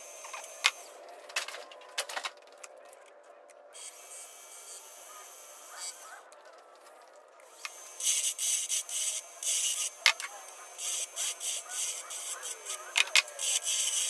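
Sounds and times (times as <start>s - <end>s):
sharp clicks: 12.5s - 13.7s.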